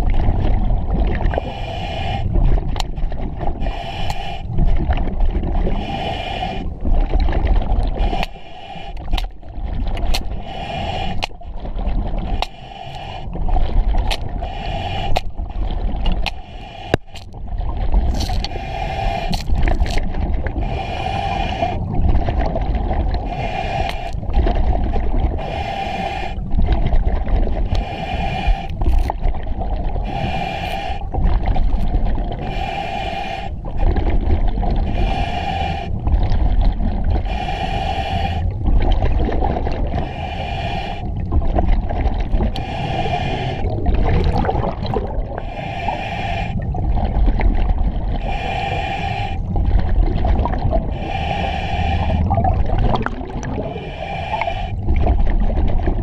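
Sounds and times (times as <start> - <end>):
regulator inhale hiss with whistle: 20.7 - 21.8, 37.3 - 38.4, 42.6 - 43.7, 45.4 - 46.6, 48.2 - 49.5, 50.9 - 52.3, 53.7 - 54.8
exhaust bubbling rumble: 43.7 - 45.4, 52.0 - 53.9.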